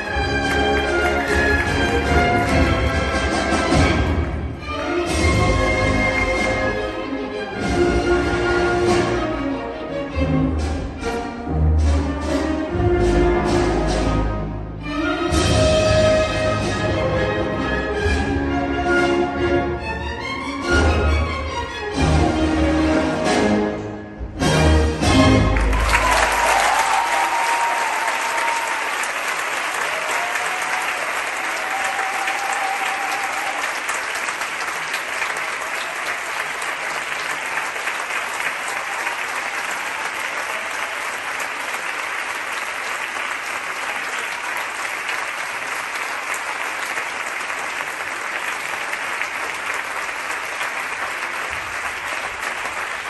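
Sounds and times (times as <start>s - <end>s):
audience applauding: 0.0s - 4.9s, 25.3s - 53.0s.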